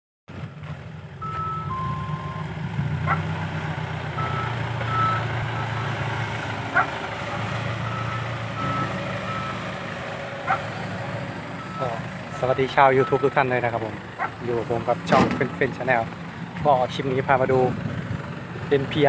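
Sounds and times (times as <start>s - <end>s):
diesel truck engine running: 0.3s - 19.0s.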